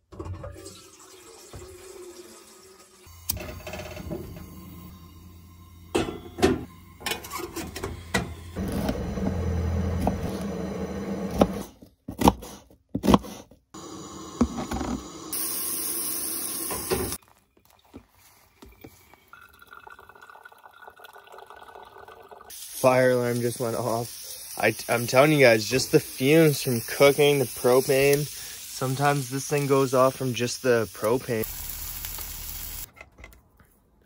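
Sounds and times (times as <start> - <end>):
hot water pouring: 0.4 - 10.4, 13.8 - 32.9
stove burner running: 0.6 - 11.7, 13.8 - 17.2, 22.5 - 32.9
knife chopping on wooden board: 11.3 - 13.4.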